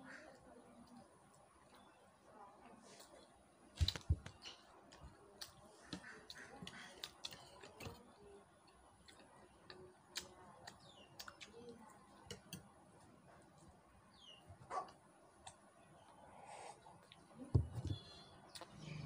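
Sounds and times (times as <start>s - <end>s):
chewing and lip smacks: 8.7s - 11.6s.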